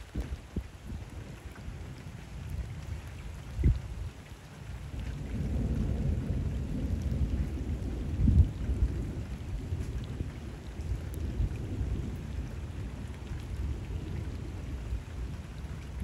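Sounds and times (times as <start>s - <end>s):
rain falling on water: 0.0s - 16.0s
thunder rolling: 5.3s - 14.6s.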